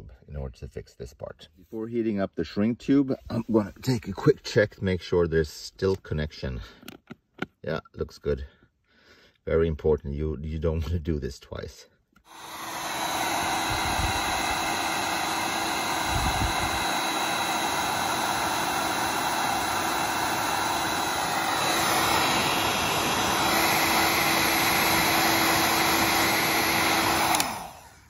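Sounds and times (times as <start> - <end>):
heat gun blowing hot air: 12.2 - 28.0.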